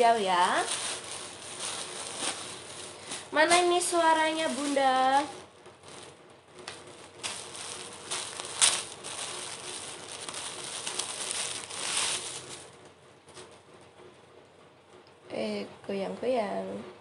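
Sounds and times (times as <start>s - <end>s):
plastic packaging crinkling: 0.0s - 12.8s.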